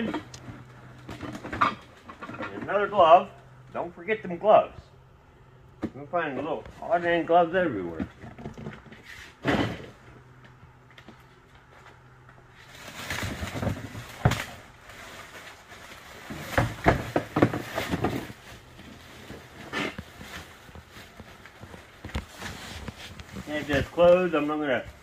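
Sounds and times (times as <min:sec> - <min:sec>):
plastic bag rustling and crinkling: 0:12.5 - 0:25.0.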